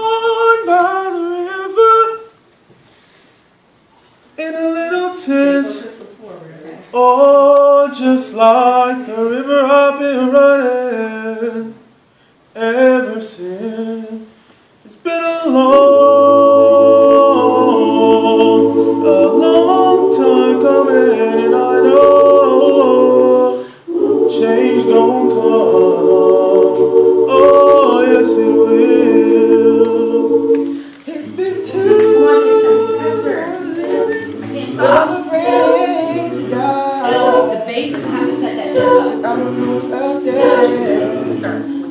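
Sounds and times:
solo voice singing: 0:14.9 - 0:41.9
choir singing a cappella: 0:15.2 - 0:41.9.

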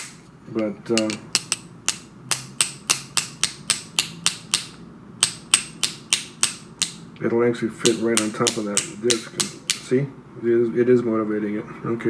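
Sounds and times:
small hammer tapping on steel: 0:01.0 - 0:07.0, 0:07.8 - 0:09.9.

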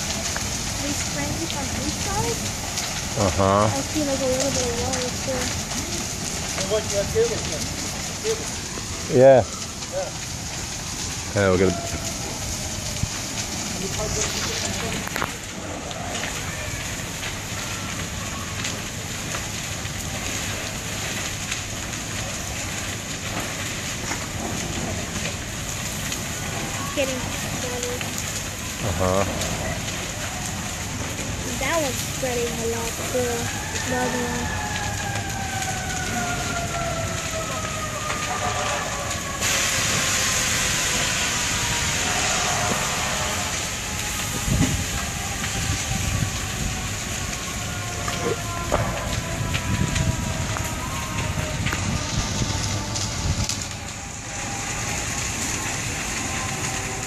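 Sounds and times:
fire crackling: 0:00.0 - 0:57.0
fire popping: 0:00.0 - 0:57.0
low rumbles: 0:00.0 - 0:57.0.

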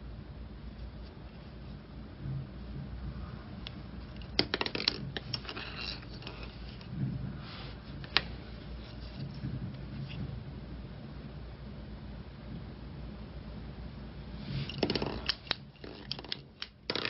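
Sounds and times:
plastic shuttle clicks and rustles: 0:03.6 - 0:07.1, 0:14.7 - 0:17.0.

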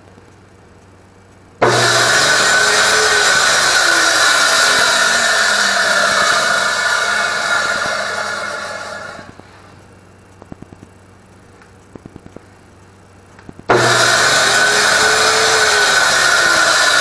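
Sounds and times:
table saw winding down: 0:01.6 - 0:09.4, 0:13.7 - 0:17.0.

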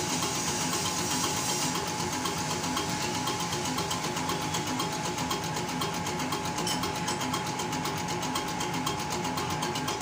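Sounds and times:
machine whine and hum: 0:00.0 - 0:10.0.

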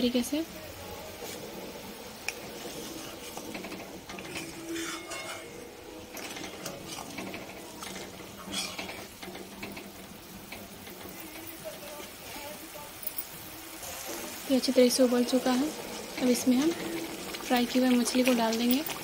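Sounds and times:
metal spatula scraping pan: 0:02.4 - 0:12.5
gravy bubbling: 0:13.4 - 0:19.0.

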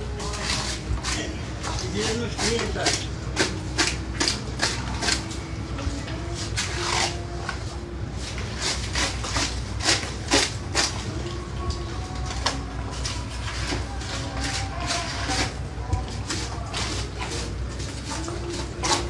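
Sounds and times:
knife sawing through fish scales: 0:00.2 - 0:05.3, 0:06.4 - 0:07.6, 0:08.2 - 0:11.1, 0:12.9 - 0:15.6, 0:16.2 - 0:19.0.

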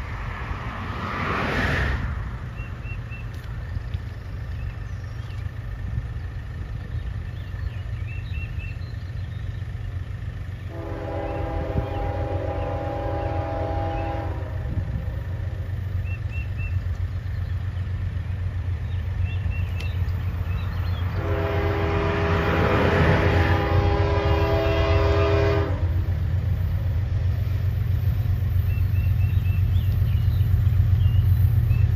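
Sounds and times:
locomotive low rumble: 0:00.0 - 0:31.9
train air horn blasts: 0:10.7 - 0:15.6, 0:21.1 - 0:26.2.

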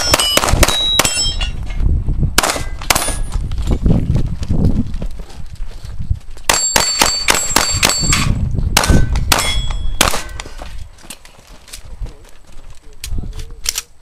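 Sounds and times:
pistol shots: 0:00.0 - 0:01.4, 0:02.4 - 0:03.2, 0:06.5 - 0:10.4
steel targets clanging: 0:00.0 - 0:01.8.

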